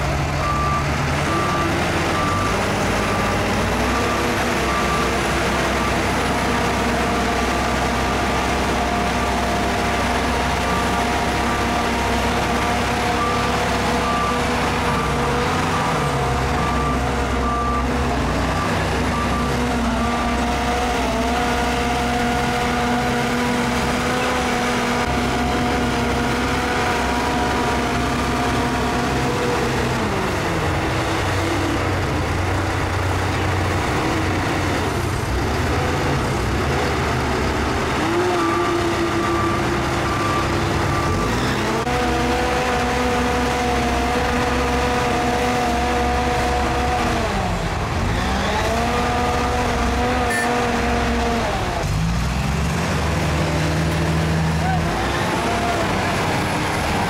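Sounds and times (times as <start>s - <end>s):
bulldozer diesel engines under load: 0.0s - 57.0s
reversing alarm beeping: 0.4s - 31.8s, 37.9s - 43.8s, 50.1s - 50.7s.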